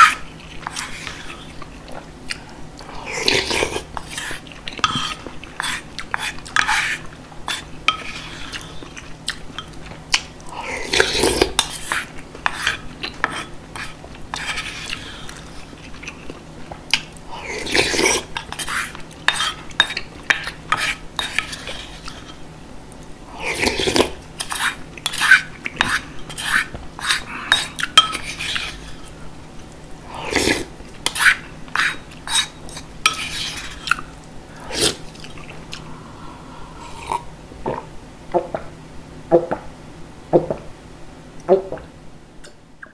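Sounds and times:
person slurping: 0.0 - 9.4, 10.5 - 15.5, 17.3 - 19.6, 23.3 - 29.0, 30.1 - 38.6
spoon scraping ceramic bowl: 3.4 - 8.7, 17.6 - 22.4, 23.8 - 29.1, 30.4 - 34.0.

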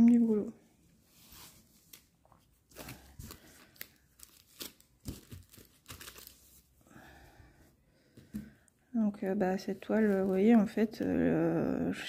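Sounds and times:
plastic sheets rustling: 1.0 - 6.8, 9.7 - 11.0.

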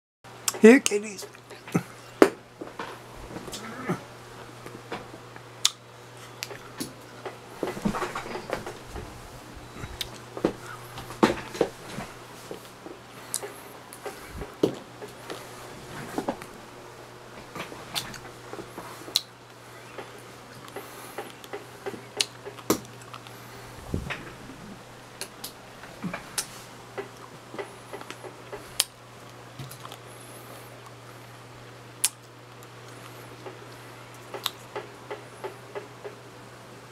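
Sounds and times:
low steady hum: 0.3 - 36.9.

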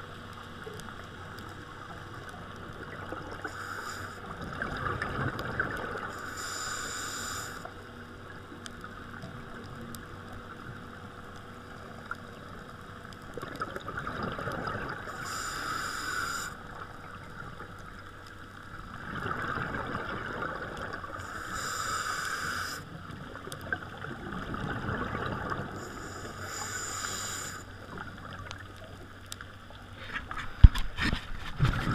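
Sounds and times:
regulator hissing inhalations: 3.4 - 4.3, 6.2 - 7.7, 15.1 - 16.6, 21.2 - 22.9, 25.8 - 27.7
gurgle of exhaled bubbles: 4.2 - 6.2, 13.3 - 15.2, 18.8 - 21.2, 23.0 - 25.9.

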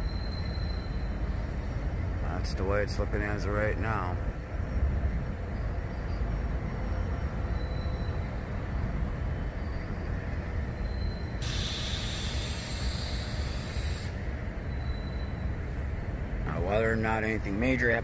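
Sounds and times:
hiss: 11.4 - 14.2.

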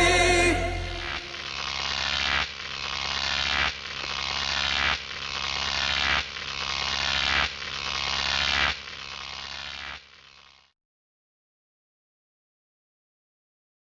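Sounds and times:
steady low hum: 0.0 - 1.6
electric buzzing and crackling: 0.0 - 10.7.

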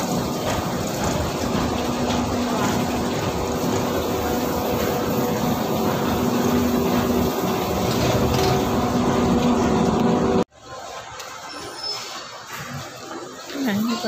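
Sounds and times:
escalator mechanical rumble: 0.0 - 10.5.

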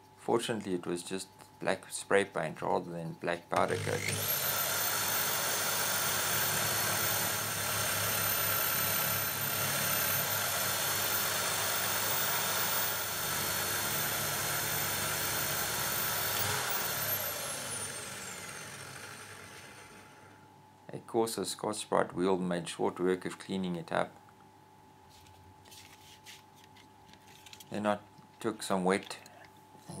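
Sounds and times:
power tool abrasive wheel whine: 3.6 - 20.4.

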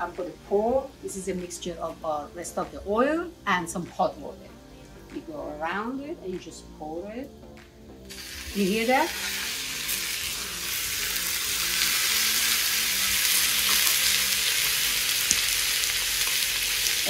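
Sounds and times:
pot sizzling: 8.0 - 17.0.

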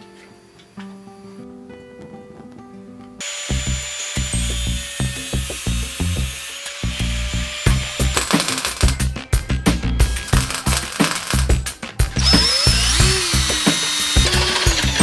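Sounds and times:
background music with steady beat: 0.0 - 15.0
angle grinder cutting metal: 3.2 - 9.1, 10.0 - 15.0
welder crackling: 3.2 - 15.0.

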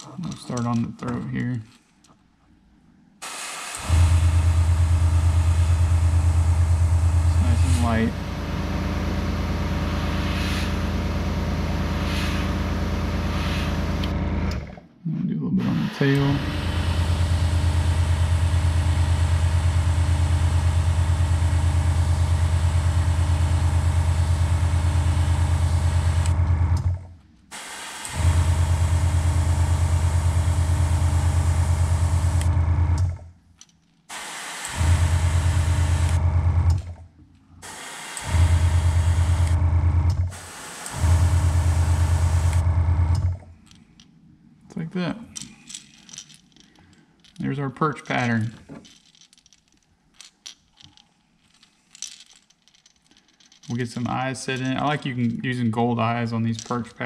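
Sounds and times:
airbrush compressor humming and hissing: 3.2 - 14.7, 15.7 - 26.8, 27.5 - 33.0, 34.1 - 36.9, 37.6 - 43.4.

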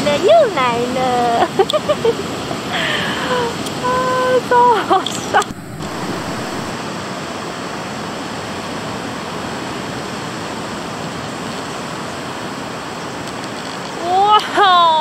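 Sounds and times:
ocean surf breaking: 1.5 - 11.1.

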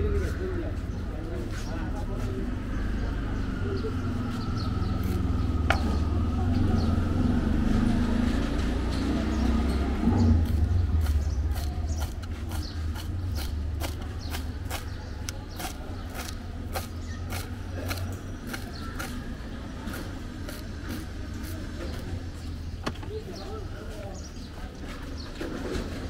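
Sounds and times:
passing traffic rumble: 0.0 - 26.0
knife chopping on wooden board: 10.4 - 19.3.

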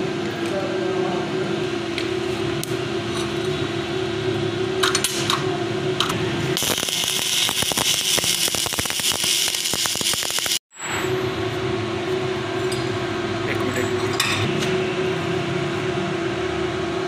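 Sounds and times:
steady hum: 0.0 - 17.0
electric welding arc crackling: 6.5 - 10.6.

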